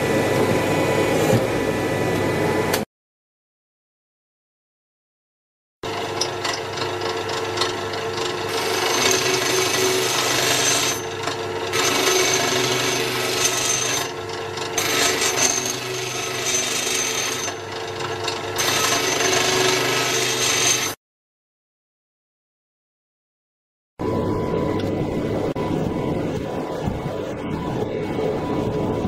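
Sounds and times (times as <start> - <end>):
bench grinder motor hum: 5.9 - 21.0
steel grinding on wheel: 8.2 - 21.0.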